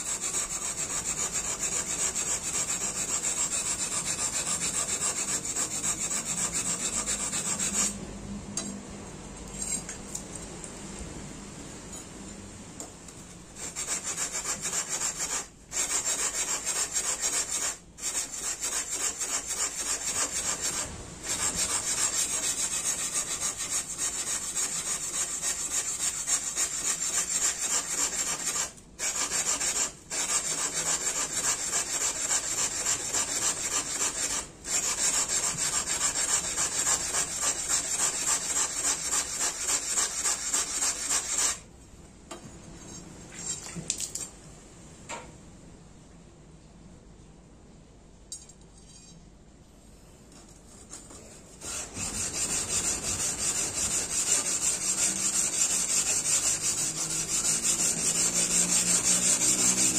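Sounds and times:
blade scraping on whetstone: 0.0s - 8.0s, 13.6s - 41.6s, 50.7s - 59.9s.

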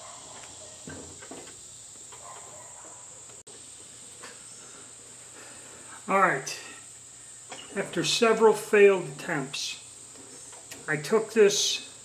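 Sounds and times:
faint high-pitched hiss: 0.0s - 12.0s.

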